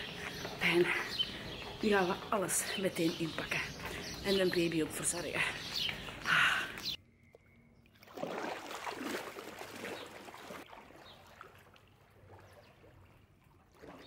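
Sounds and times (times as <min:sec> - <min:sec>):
water lapping: 0:00.0 - 0:07.0, 0:07.8 - 0:14.0
pool water splashing: 0:07.8 - 0:14.0.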